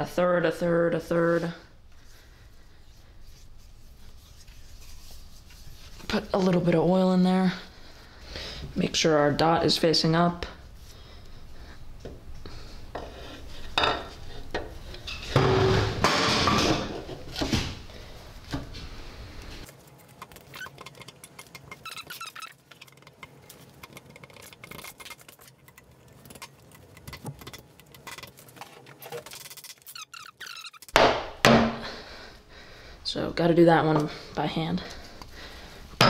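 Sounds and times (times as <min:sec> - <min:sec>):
light metal clicks and squeaks: 0:29.6 - 0:31.0.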